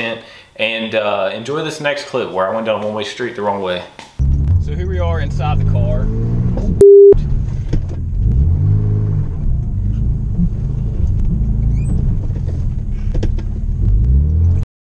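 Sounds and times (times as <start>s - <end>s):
car engine revving: 4.3s - 14.6s.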